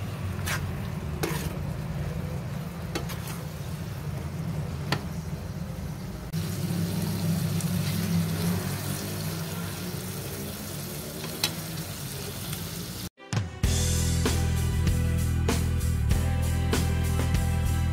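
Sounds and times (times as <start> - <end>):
food sizzling in a wok: 5.2 - 13.1
background music: 13.2 - 17.9
outro tune with a beat: 13.2 - 17.9.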